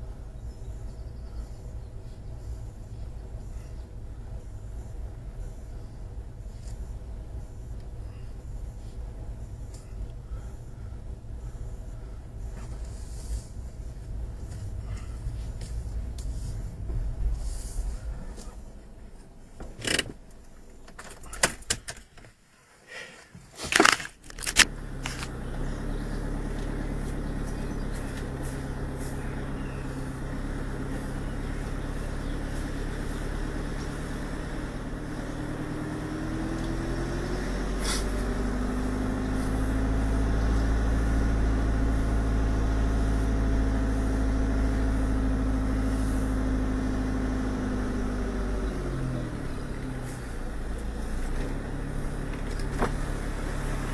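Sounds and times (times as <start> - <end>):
motorhome engine running: 0.0 - 22.5, 23.6 - 53.9
sharp clicks and knocks: 19.2 - 22.4.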